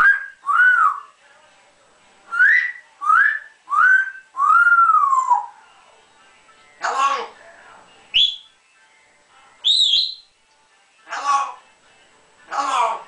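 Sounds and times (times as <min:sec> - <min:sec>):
parrot whistling: 0:00.0 - 0:01.0, 0:02.4 - 0:05.5, 0:08.1 - 0:08.6, 0:09.6 - 0:10.3.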